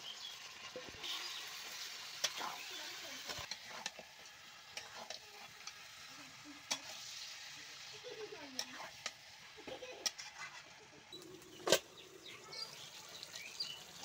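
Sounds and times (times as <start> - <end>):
meat sizzling in a pan: 0.0 - 14.0
metal spatula scraping pan: 2.2 - 4.1, 10.0 - 10.7.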